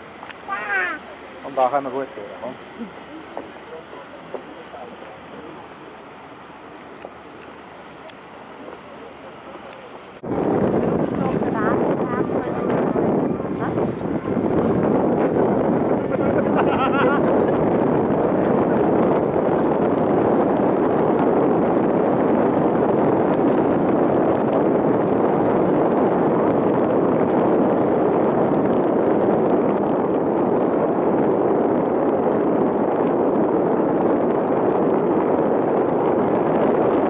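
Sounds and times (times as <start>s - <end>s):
paddle wheels churning water: 0.0s - 25.8s.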